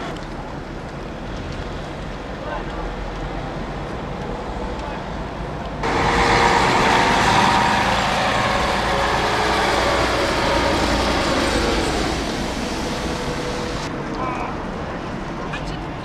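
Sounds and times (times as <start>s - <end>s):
thunder rumble: 5.8s - 13.9s.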